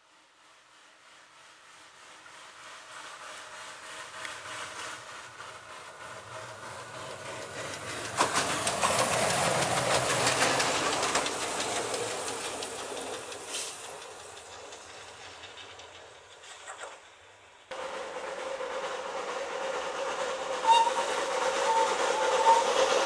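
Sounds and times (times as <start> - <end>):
steam hiss: 0.0 - 23.0
steam locomotive exhaust beats: 0.1 - 23.0
wheels clattering over rail joints: 3.0 - 23.0.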